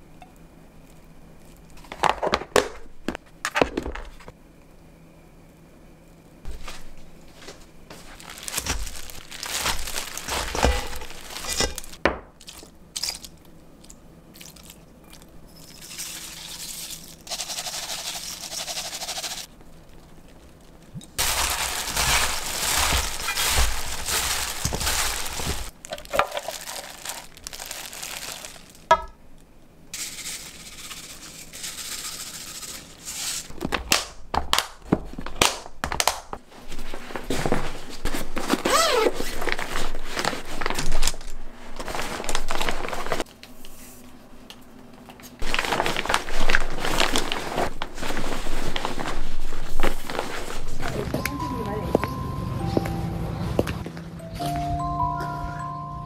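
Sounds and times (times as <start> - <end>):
cabbage rustling in bowl: 6.5 - 12.0, 15.7 - 28.9, 36.5 - 43.2, 45.4 - 51.1.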